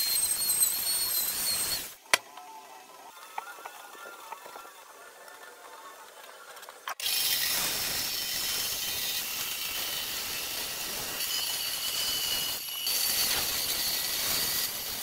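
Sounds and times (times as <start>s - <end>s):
power tool hissing and whining: 7.0s - 15.0s.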